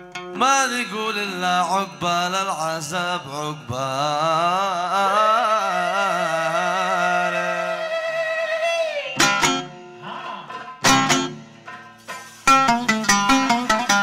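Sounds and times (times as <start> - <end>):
plucked string instrument: 0.0 - 3.9, 9.2 - 14.0
man singing long note: 0.4 - 9.2.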